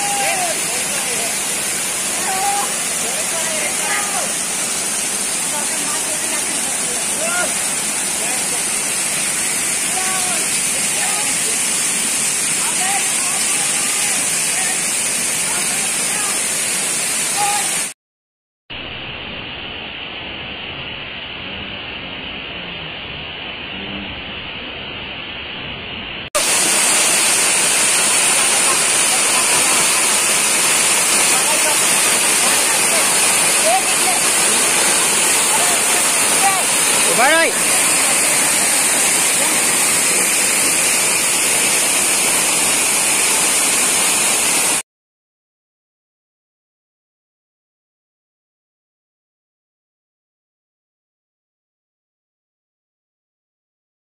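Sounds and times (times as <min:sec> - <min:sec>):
waterfall rushing: 0:00.0 - 0:18.0, 0:26.4 - 0:44.8.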